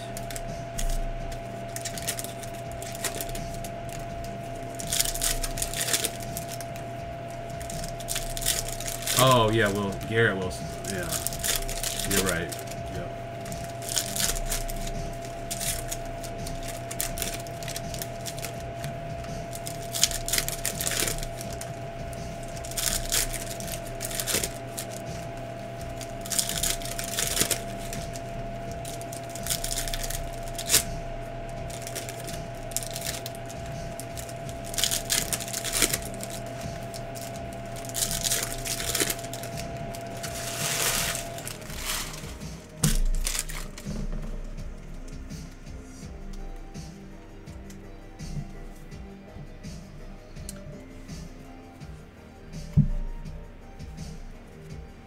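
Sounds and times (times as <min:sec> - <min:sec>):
foil wrappers crinkling and tearing: 0:00.0 - 0:45.1
low hum: 0:00.0 - 0:55.0.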